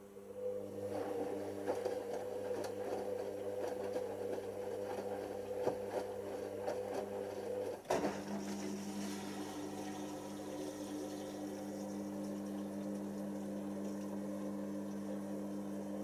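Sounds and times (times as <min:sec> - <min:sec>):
drain pump humming: 0:00.0 - 0:16.0.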